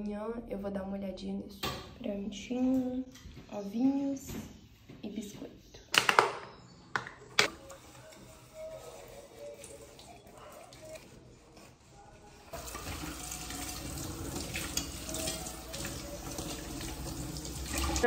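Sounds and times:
sponge scrubbing dishes: 7.5 - 18.0
cutlery being rinsed: 12.5 - 18.0
tap water running into sink: 12.6 - 18.0.

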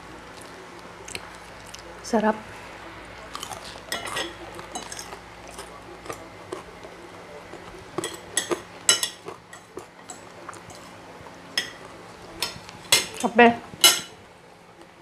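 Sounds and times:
cutlery clinking on ceramic plates: 3.9 - 6.6, 8.0 - 10.9, 11.6 - 14.2.

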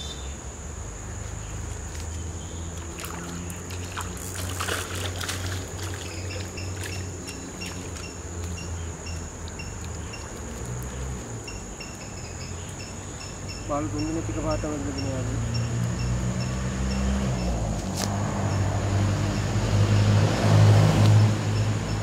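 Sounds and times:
insect trill: 0.0 - 22.0
fish thrashing in water: 2.8 - 8.5.

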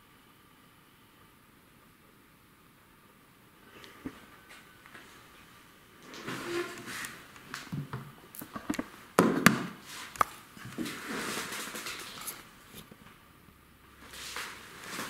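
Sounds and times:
rustling: 9.8 - 13.2, 14.0 - 15.0.

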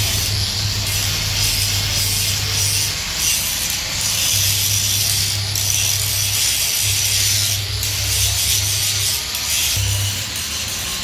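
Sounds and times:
low motor hum: 0.0 - 3.7
power tool grinding steel: 0.0 - 11.0.

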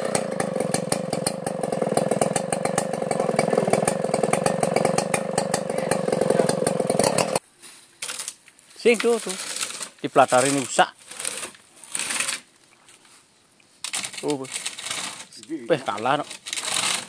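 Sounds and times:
chainsaw engine running: 0.0 - 7.4, 13.9 - 17.0.

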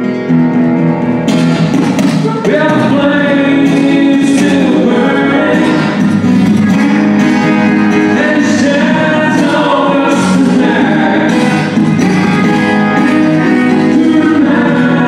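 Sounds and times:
acoustic guitar: 0.0 - 15.0
man singing into a microphone: 2.2 - 7.1, 7.9 - 11.8, 12.4 - 15.0.

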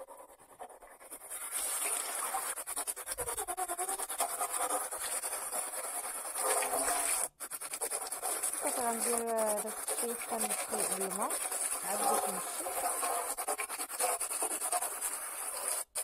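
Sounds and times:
tap water running into a sink: 1.6 - 2.4, 6.4 - 7.2
water splashing in a basin: 1.6 - 2.4, 6.4 - 7.3.

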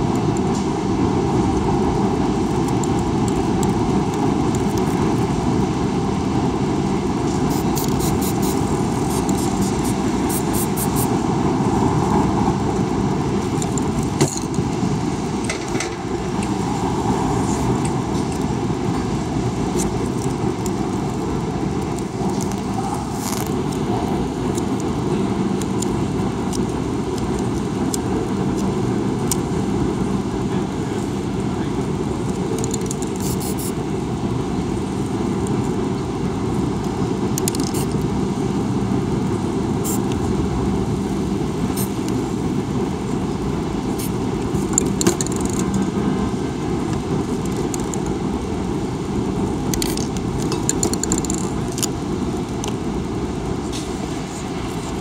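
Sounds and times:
city street traffic rumble: 0.0 - 55.0
aerosol spray paint hissing: 7.3 - 11.2, 33.2 - 33.8, 39.8 - 40.1, 41.8 - 42.0.

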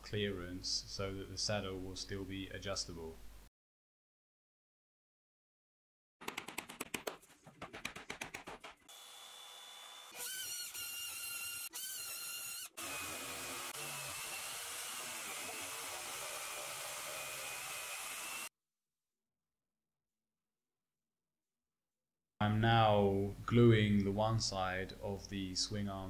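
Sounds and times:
electric jigsaw cutting plywood: 8.9 - 18.5.

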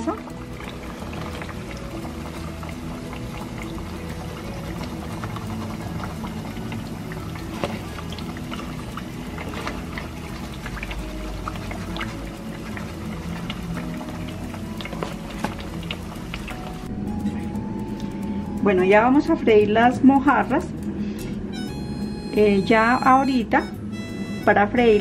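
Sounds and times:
plantains sizzling in hot oil: 0.0 - 17.0.

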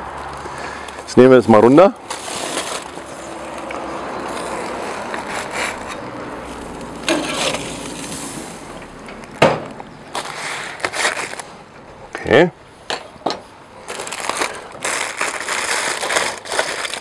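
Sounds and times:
foil crinkling and tearing: 2.0 - 3.7, 10.1 - 11.6, 13.8 - 17.0.

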